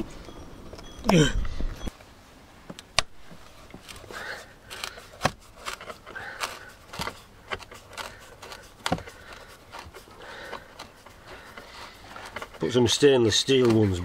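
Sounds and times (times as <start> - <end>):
light scraping: 3.2 - 14.0.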